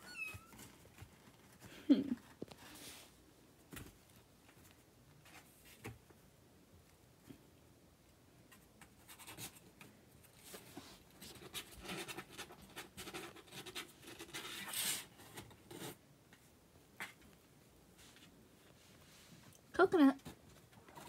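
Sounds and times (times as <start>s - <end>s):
kitten rustling on blankets: 0.1s - 5.9s, 8.9s - 15.9s, 17.8s - 19.6s.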